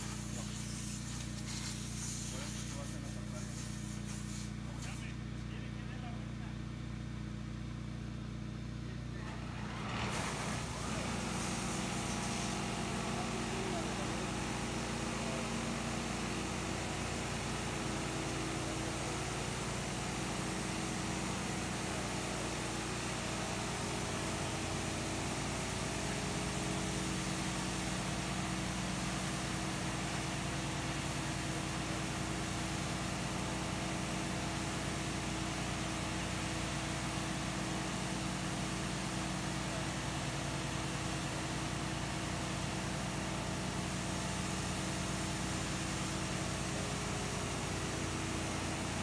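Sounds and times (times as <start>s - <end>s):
high-pressure water jets hissing: 0.0s - 5.1s, 10.1s - 19.6s
car wash machine hum: 0.0s - 49.0s.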